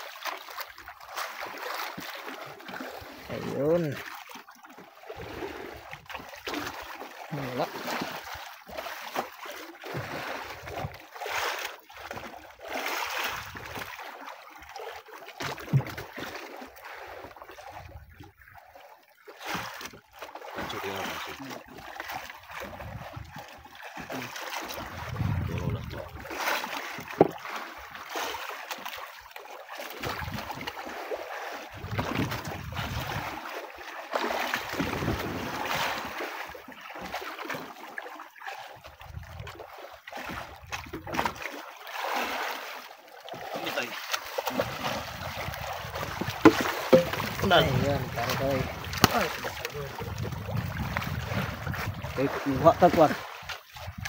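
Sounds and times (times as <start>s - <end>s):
water lapping against boat: 0.0s - 54.0s
sharp knocks: 46.4s - 47.5s.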